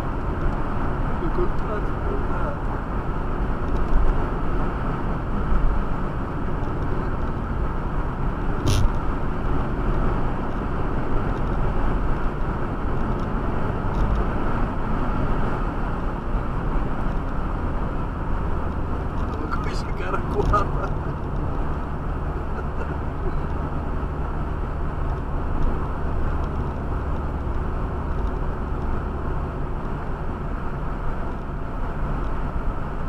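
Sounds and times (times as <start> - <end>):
car road and engine noise: 0.0 - 33.0.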